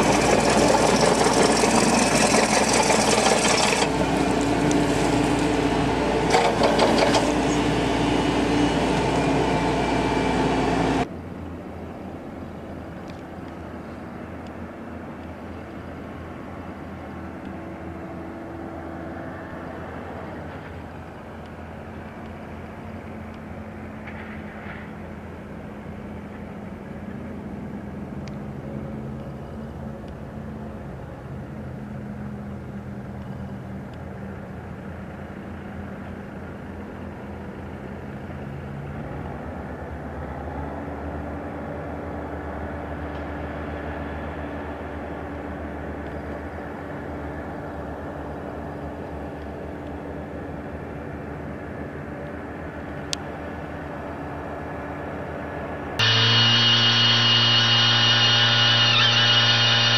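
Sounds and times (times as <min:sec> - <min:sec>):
diesel engine running: 0:00.0 - 0:11.1, 0:52.4 - 0:59.9.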